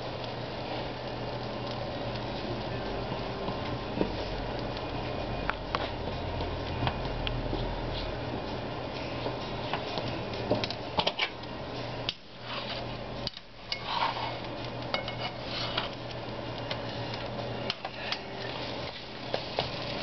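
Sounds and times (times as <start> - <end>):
metal tongs clinking on pan: 14.9 - 15.5.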